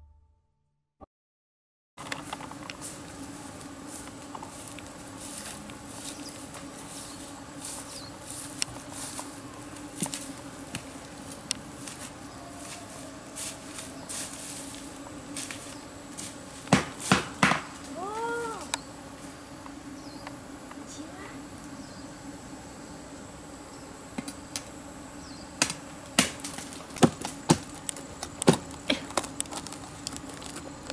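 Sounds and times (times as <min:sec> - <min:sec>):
footsteps through grass: 0:02.0 - 0:19.4
insect drone: 0:02.0 - 0:30.9
loud sharp cracks: 0:16.7 - 0:17.7, 0:25.6 - 0:27.6.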